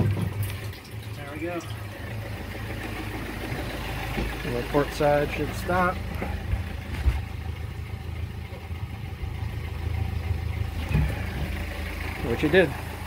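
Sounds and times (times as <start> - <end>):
diesel engine idling: 0.0 - 13.0
faint engine knock: 2.1 - 4.8, 5.9 - 7.4, 10.8 - 12.2.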